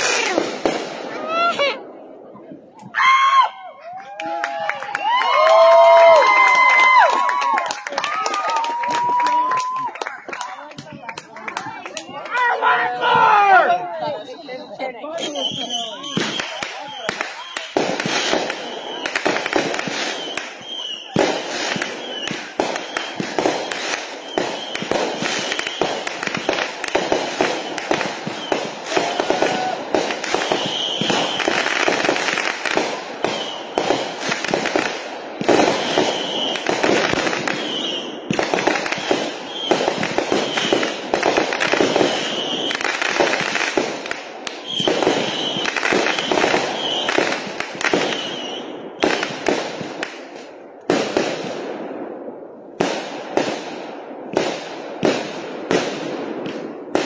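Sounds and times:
fireworks bursting and crackling: 0.0s - 57.0s
high firework whistles: 14.1s - 50.4s.

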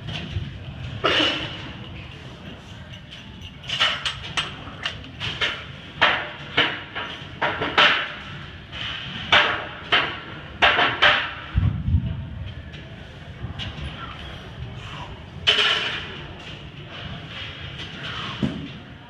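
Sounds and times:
weight plates clanking: 0.6s - 8.2s.

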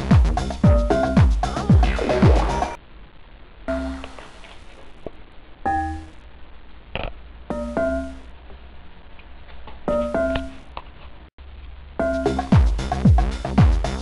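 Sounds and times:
deep bass: 0.0s - 2.8s, 11.5s - 14.0s
electronic keyboard chords: 0.0s - 2.8s, 7.5s - 8.3s, 12.0s - 14.0s.

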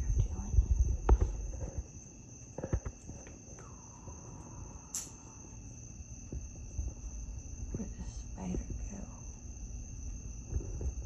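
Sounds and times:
low handling rumble: 0.0s - 1.9s
crickets trilling: 0.0s - 11.0s
sharp click: 4.9s - 5.2s.

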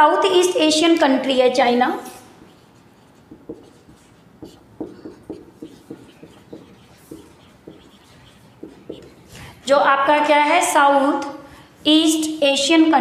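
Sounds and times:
marker pen writing on whiteboard: 2.0s - 9.7s.

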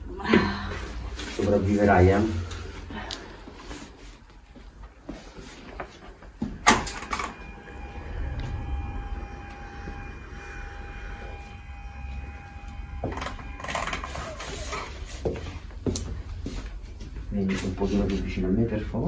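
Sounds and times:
steady hum with high whine: 0.0s - 19.0s.

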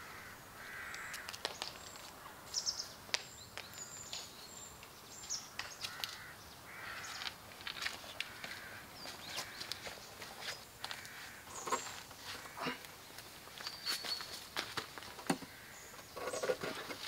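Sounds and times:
crows cawing: 0.0s - 1.4s, 5.5s - 7.4s, 8.1s - 10.0s, 10.8s - 13.0s, 15.3s - 16.5s
small birds chirping: 0.0s - 17.0s.

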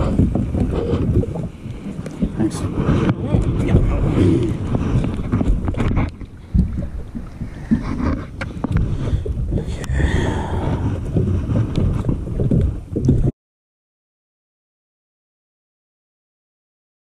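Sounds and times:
wind rumbling on microphone: 0.0s - 13.3s.

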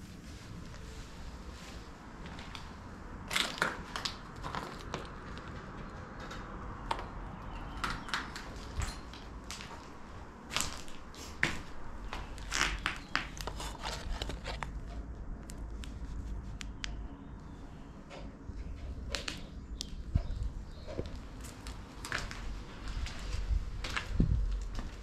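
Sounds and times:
footsteps on rubble: 7.8s - 14.8s, 20.2s - 25.0s.

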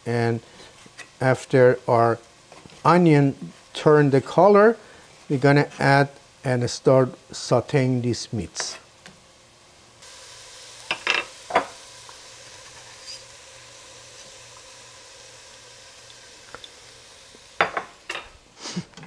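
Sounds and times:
onions sizzling in oil: 8.1s - 18.7s.

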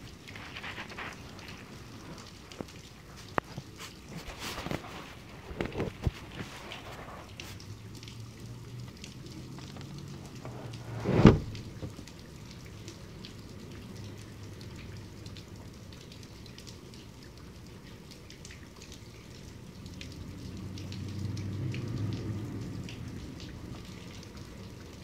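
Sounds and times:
heavy rain: 0.0s - 25.0s
loud short thump: 10.9s - 11.8s.

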